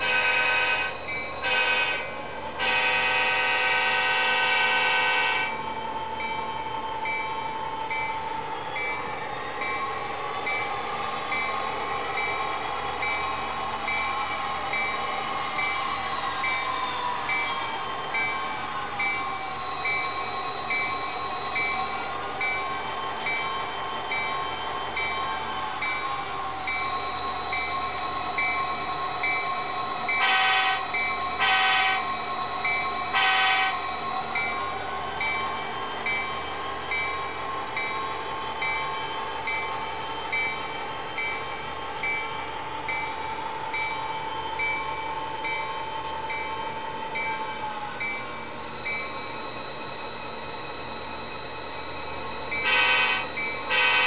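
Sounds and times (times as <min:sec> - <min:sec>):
horn blasts: 0:00.0 - 0:05.6, 0:30.2 - 0:32.1, 0:33.1 - 0:33.9, 0:52.6 - 0:54.0
locomotive bell dinging: 0:00.0 - 0:54.0.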